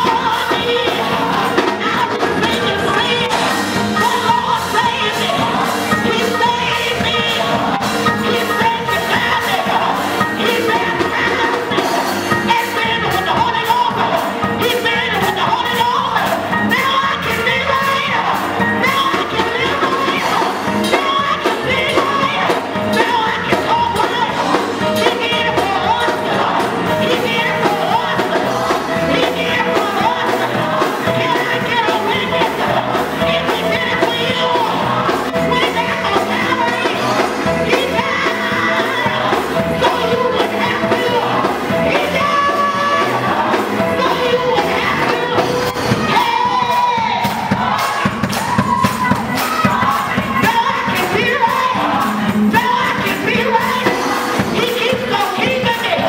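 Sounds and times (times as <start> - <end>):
keyboard and organ: 0.0 - 47.4
bass guitar: 0.0 - 56.0
choir singing: 0.0 - 56.0
drums: 0.0 - 56.0
singers shouting: 0.0 - 56.0
woman singing lead vocals: 0.0 - 56.0.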